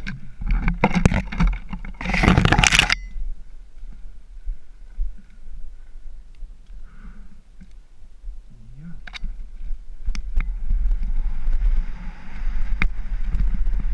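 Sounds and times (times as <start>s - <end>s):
bike rattling: 0.0s - 3.2s, 9.1s - 13.9s.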